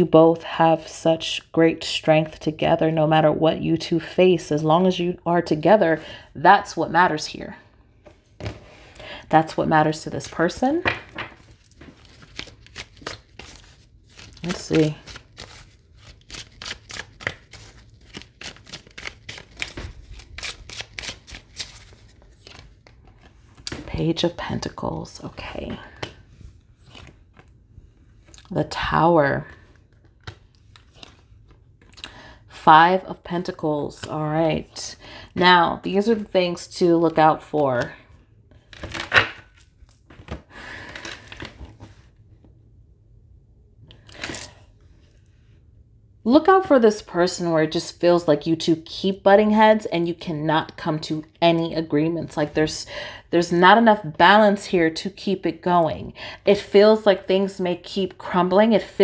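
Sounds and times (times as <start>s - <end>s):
cards being shuffled: 11.2s - 23.8s, 26.8s - 27.6s, 29.6s - 31.9s, 38.7s - 42.0s.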